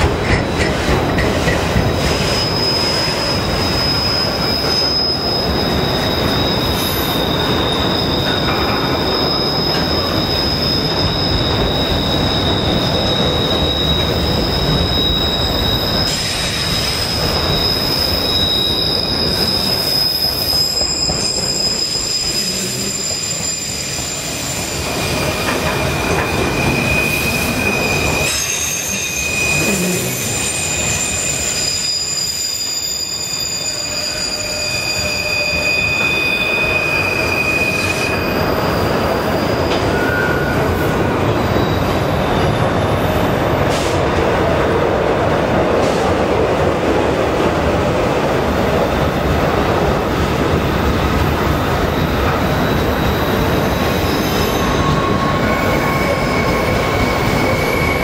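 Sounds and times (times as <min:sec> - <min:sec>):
train wheels rumbling on rails: 0:00.0 - 0:58.0
high wheel squeals: 0:01.9 - 0:44.0, 0:50.7 - 0:58.0.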